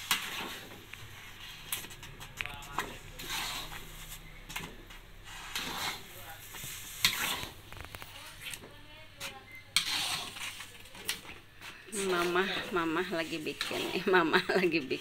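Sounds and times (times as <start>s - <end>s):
spatula stirring thick batter: 0.0s - 15.0s.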